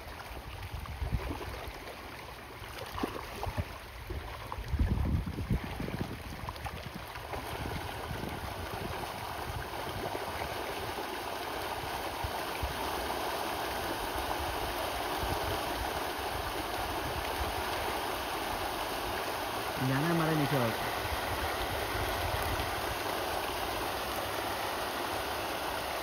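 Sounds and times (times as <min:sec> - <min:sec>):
fish thrashing and splashing: 0:01.1 - 0:04.7.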